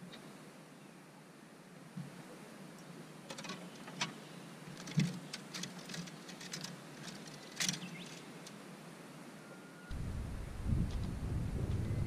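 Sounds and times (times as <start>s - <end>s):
low steady hum: 8.1s - 12.0s.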